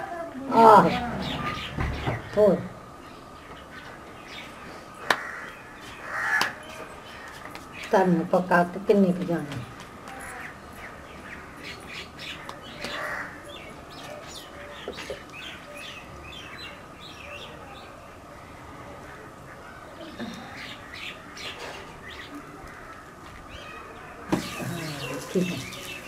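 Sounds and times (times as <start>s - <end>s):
small birds chirping: 10.3s - 26.0s.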